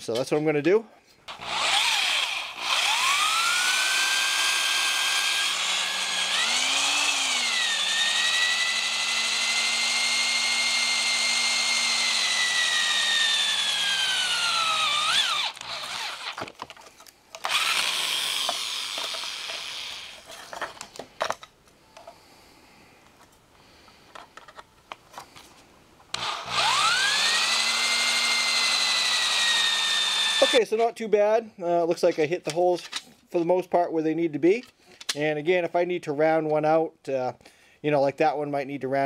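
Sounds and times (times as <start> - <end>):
electric drill boring through steel: 1.3 - 16.5, 17.4 - 20.3, 26.1 - 30.6.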